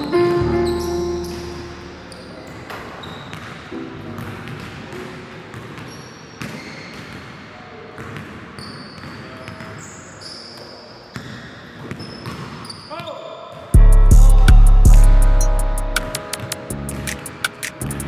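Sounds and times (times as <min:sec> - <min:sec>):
loud pitched tone: 0:00.0 - 0:02.4
shoe squeaks: 0:00.0 - 0:03.6, 0:05.8 - 0:07.2, 0:08.6 - 0:13.4.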